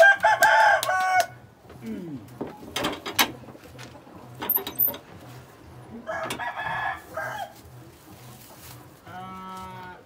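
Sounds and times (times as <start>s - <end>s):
rooster crowing: 0.0s - 1.4s, 6.0s - 7.6s.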